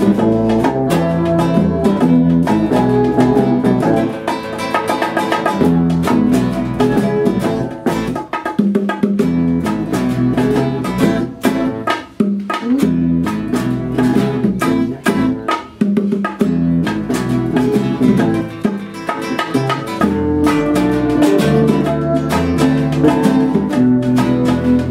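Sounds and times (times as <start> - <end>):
electric bass line: 0.0 - 4.2, 5.6 - 8.2, 9.3 - 11.8, 12.6 - 15.4, 16.5 - 18.7, 19.3 - 24.9
bongos: 0.0 - 24.9
guitars picking and strumming: 0.0 - 24.9.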